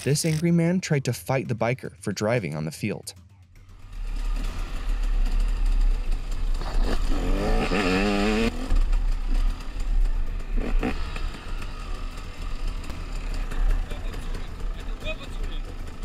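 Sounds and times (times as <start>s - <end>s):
motorcycle engine rumbling: 3.2s - 16.0s.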